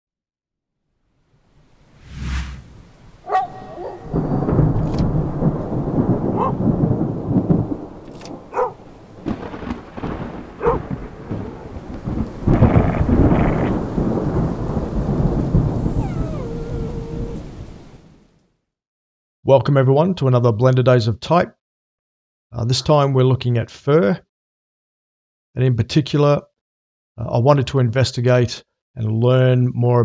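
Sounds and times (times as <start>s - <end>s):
rolling thunder: 2.1s - 18.2s
sharp thunder cracks: 2.5s - 18.0s
rain: 2.7s - 18.4s.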